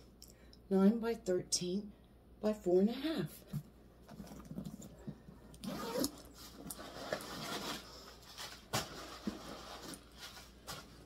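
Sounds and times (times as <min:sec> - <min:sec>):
leather bag rustling: 0:05.6 - 0:07.8.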